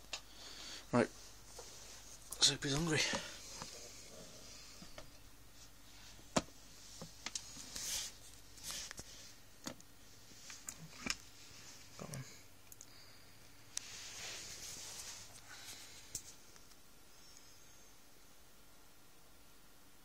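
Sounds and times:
soft rustles: 1.1 - 9.4, 13.8 - 16.6.

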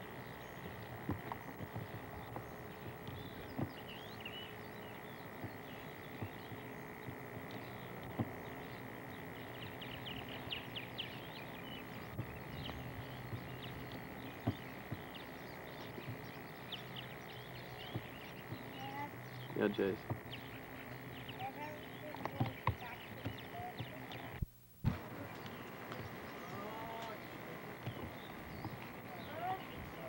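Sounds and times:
birds chirping: 0.0 - 30.0.

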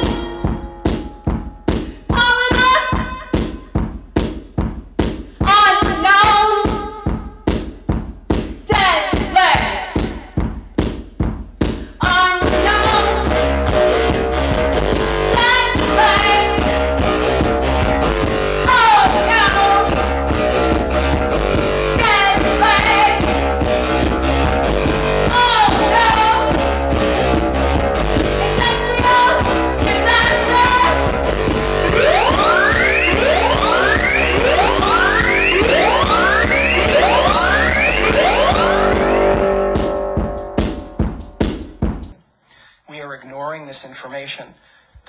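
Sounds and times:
percussive hits: 0.0 - 2.2, 3.3 - 6.0, 6.7 - 9.4, 31.1 - 42.2
synth bass: 12.4 - 42.1
repeating keyboard pattern: 14.0 - 42.1
falling pitch slides: 31.4 - 39.7
voice: 42.9 - 44.6.

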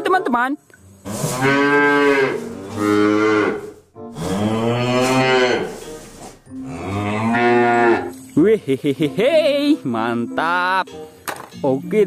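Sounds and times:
cows mooing: 1.0 - 6.0, 6.6 - 8.2.

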